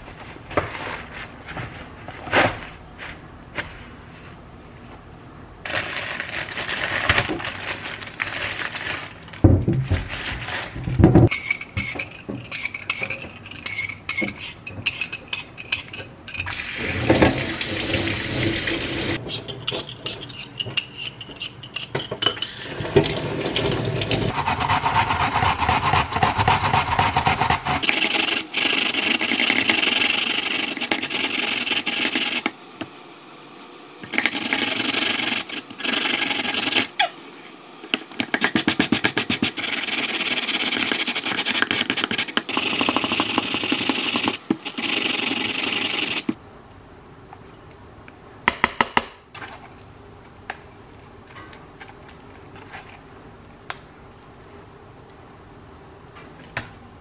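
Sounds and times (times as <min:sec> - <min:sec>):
potato grated on plastic grater: 0:24.3 - 0:32.4, 0:34.2 - 0:36.9, 0:38.4 - 0:46.2.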